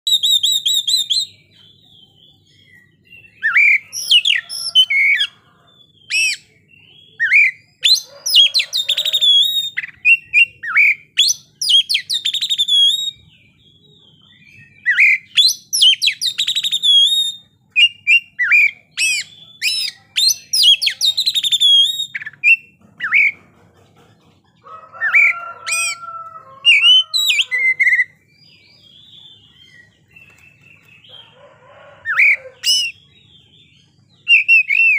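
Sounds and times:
songbird singing: 0:00.0 - 0:34.9.

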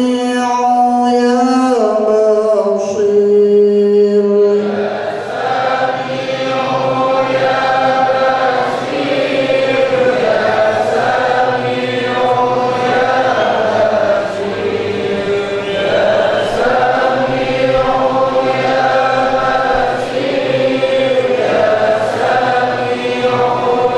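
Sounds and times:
men chanting in unison: 0:01.2 - 0:23.9.

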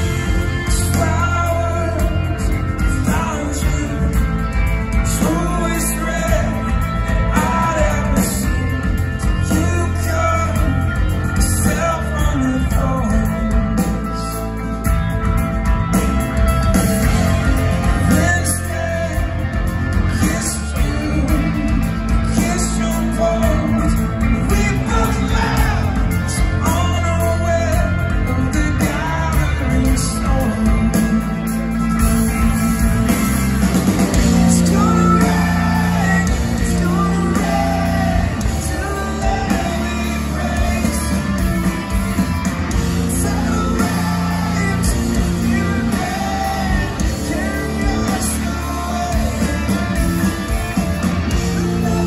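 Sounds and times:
drums: 0:00.0 - 0:52.0
electric guitars: 0:00.0 - 0:52.0
rock band playing live: 0:00.0 - 0:52.0
person singing: 0:33.8 - 0:52.0.

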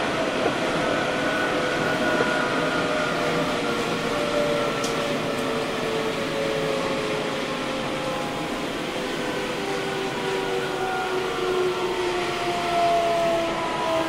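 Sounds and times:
train rumble: 0:00.0 - 0:14.0.

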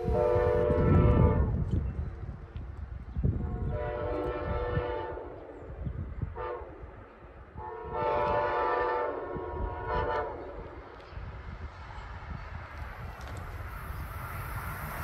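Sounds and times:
train air horn blasts: 0:00.0 - 0:01.6, 0:03.4 - 0:05.4, 0:06.3 - 0:06.8, 0:07.6 - 0:10.6.

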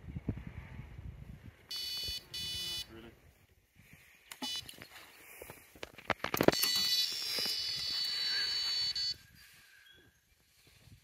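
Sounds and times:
electronic bite alarm tone: 0:01.7 - 0:02.9, 0:06.5 - 0:09.2.

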